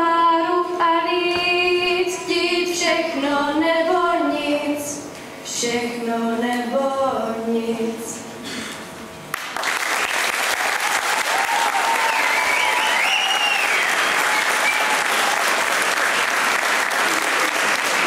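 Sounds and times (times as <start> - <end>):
audience applause: 9.3 - 18.0
voices cheering: 10.5 - 16.0.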